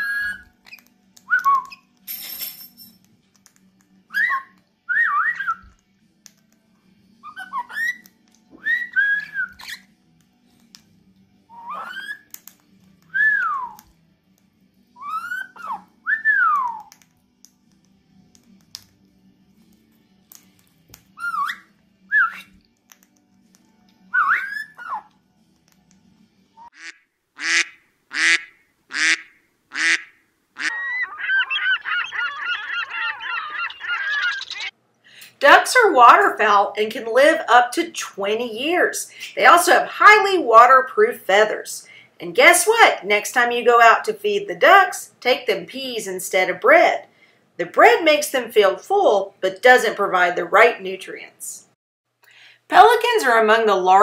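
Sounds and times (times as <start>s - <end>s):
parrot whistling: 0.0s - 1.8s, 4.1s - 5.7s, 7.2s - 8.0s, 8.6s - 9.9s, 11.5s - 12.3s, 15.0s - 16.9s, 21.2s - 22.5s, 24.1s - 25.1s, 30.6s - 34.7s
waterfowl calling: 26.8s - 34.7s.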